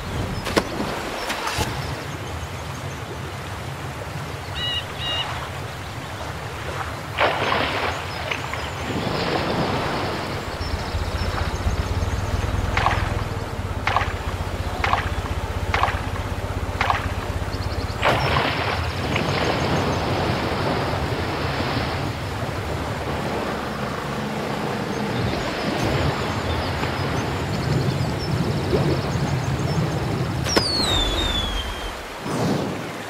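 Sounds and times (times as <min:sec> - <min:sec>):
churning water rushing: 0:00.0 - 0:33.0
low rumble: 0:08.6 - 0:32.2
regular knocks: 0:10.3 - 0:18.3.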